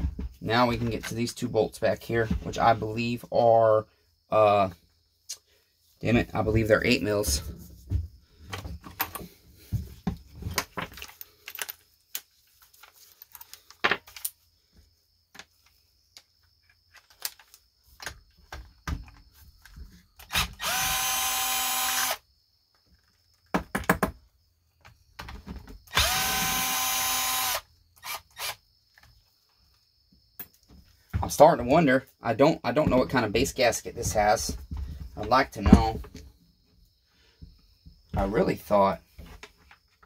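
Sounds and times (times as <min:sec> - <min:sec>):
cordless drill whining: 0:20.2 - 0:22.2, 0:25.9 - 0:28.6.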